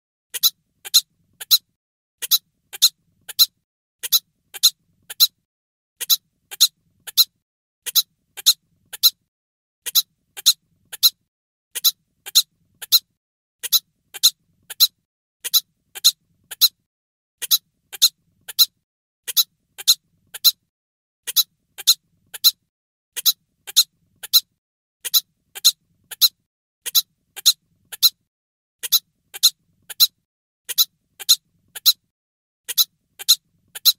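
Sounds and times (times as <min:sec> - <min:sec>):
cartoon squeaky hiccups: 0:11.8 - 0:13.0, 0:13.6 - 0:16.8, 0:21.2 - 0:22.6, 0:25.0 - 0:28.2.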